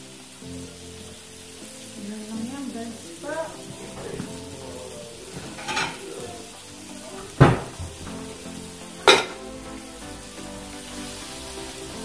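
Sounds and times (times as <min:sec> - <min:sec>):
food sizzling on a griddle: 0:00.0 - 0:12.0
sharp knocks: 0:07.4 - 0:08.2.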